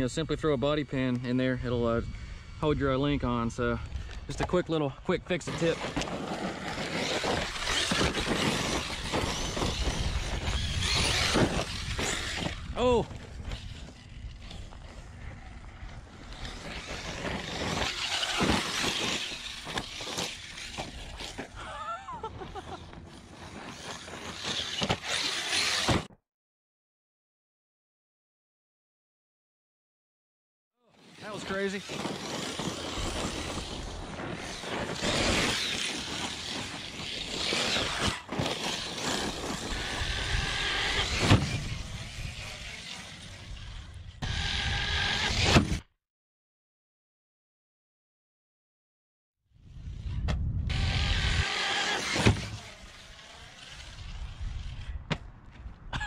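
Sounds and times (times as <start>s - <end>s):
rc car driving on gravel: 0.0s - 26.2s, 30.9s - 45.8s, 49.6s - 55.8s
electric motor whining: 5.8s - 21.5s, 31.6s - 45.5s, 50.7s - 54.7s.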